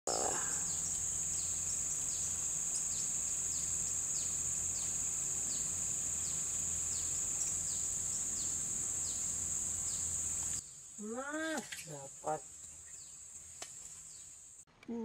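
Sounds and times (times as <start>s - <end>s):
high-pitched insect drone: 0.1s - 10.6s.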